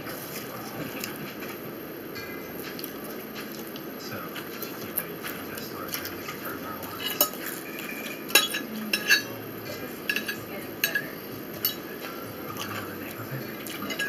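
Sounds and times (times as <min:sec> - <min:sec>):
fork clinking on ceramic plate: 0:06.9 - 0:09.4, 0:10.1 - 0:11.9.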